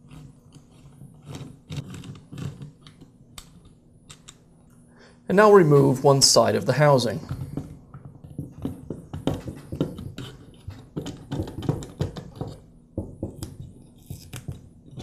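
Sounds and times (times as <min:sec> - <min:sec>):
plastic clicks and knocks: 0:07.3 - 0:13.7.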